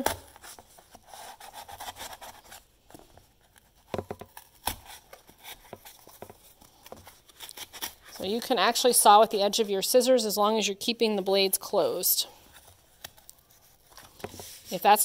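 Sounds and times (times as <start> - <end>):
scissors rasping through cardboard: 0.0 - 8.6.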